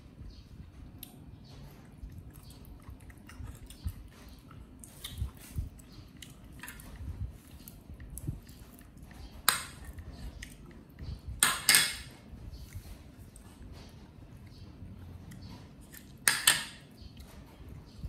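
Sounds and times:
dishes and utensils clinking: 11.4s - 12.1s
dishes clattering: 11.4s - 12.1s.

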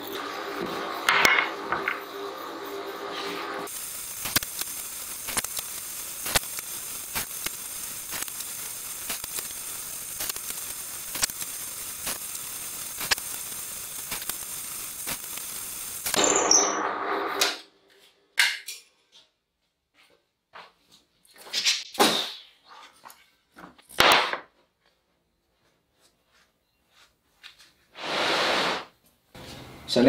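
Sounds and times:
steady hiss: 3.7s - 16.2s.

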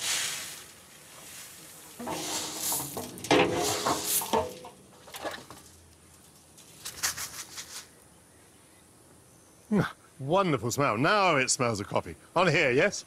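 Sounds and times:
coffee beans rattling: 2.0s - 6.3s.

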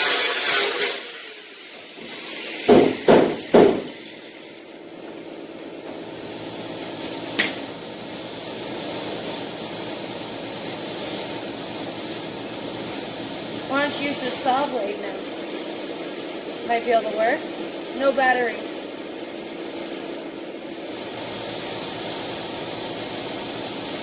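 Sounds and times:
angle grinder cutting sheet metal: 0.0s - 4.8s
sharp metallic knocks: 2.6s - 4.1s.

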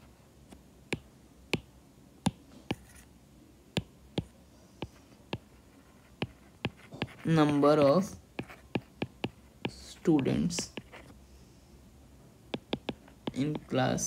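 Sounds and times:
stylus tapping on tablet screen: 0.9s - 1.7s, 6.2s - 9.8s, 12.5s - 13.7s.

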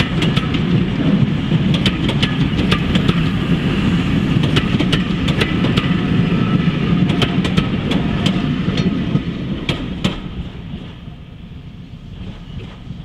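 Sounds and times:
train wheels rumbling on rails: 0.0s - 13.0s
sharp clicks and knocks: 1.7s - 3.2s, 4.4s - 6.0s.

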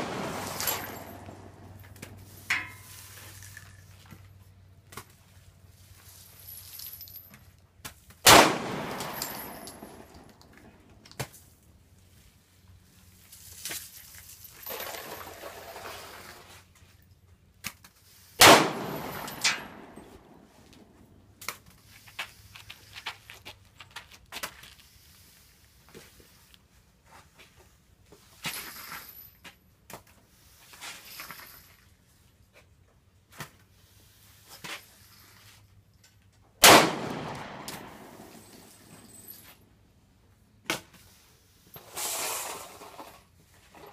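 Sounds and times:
pistol shots with echo: 0.0s - 1.3s, 8.3s - 10.0s, 18.4s - 20.0s, 36.6s - 38.4s.

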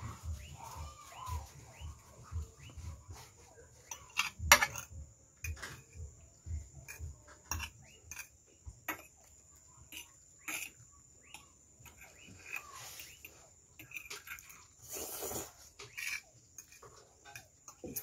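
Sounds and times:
forks scraping against plates: 2.6s - 6.0s, 6.8s - 9.3s, 9.9s - 18.0s.

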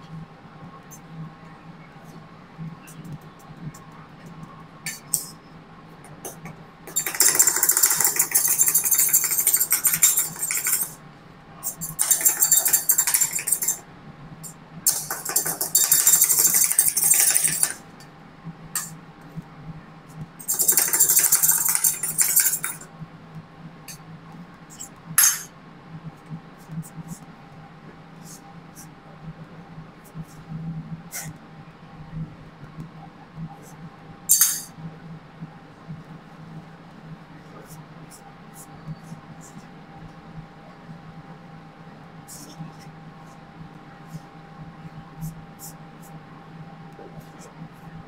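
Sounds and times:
metal spatulas chopping on steel: 6.9s - 11.0s, 11.7s - 13.8s, 14.9s - 17.8s, 20.4s - 22.8s, 25.2s - 25.5s, 34.3s - 34.7s
sharp metal clink: 6.9s - 11.0s, 11.7s - 13.8s, 14.9s - 17.8s, 20.4s - 22.8s, 25.2s - 25.5s, 34.3s - 34.7s.

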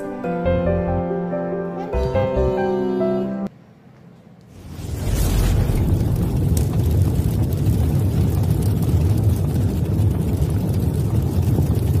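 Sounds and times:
fireball whoosh: 4.5s - 12.0s.

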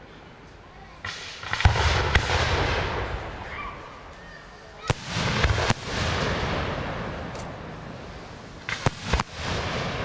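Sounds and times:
firework shells bursting: 1.0s - 3.4s, 8.3s - 10.0s.

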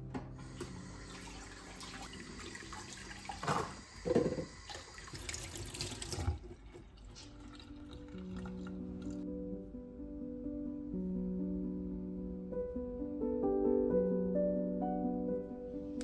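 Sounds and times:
tap water running into steel sink: 0.4s - 9.2s.

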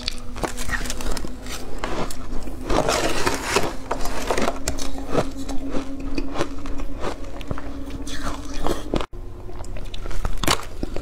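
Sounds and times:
metal spoon scraping ice: 0.0s - 6.8s
chewing crunchy ice: 0.0s - 11.0s.

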